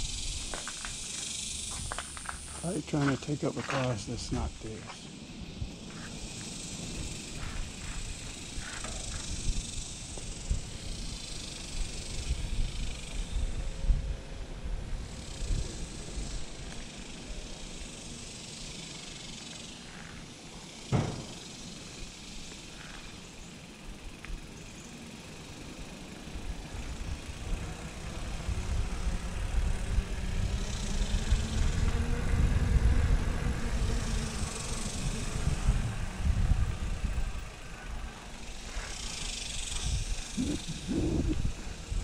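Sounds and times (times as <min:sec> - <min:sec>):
freewheel buzz: 0:00.0 - 0:02.7, 0:05.0 - 0:42.0
bike tyre hiss: 0:00.0 - 0:42.0
wind rumble on microphone: 0:07.0 - 0:16.8, 0:26.8 - 0:42.0
sharp knock: 0:20.9 - 0:21.4.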